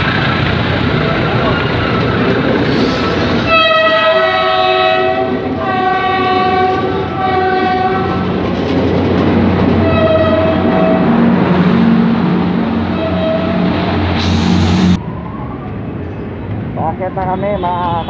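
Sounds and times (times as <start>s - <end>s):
train rumble: 0.0s - 17.3s
train horn blasts: 3.5s - 8.2s, 9.8s - 11.2s, 12.9s - 14.4s.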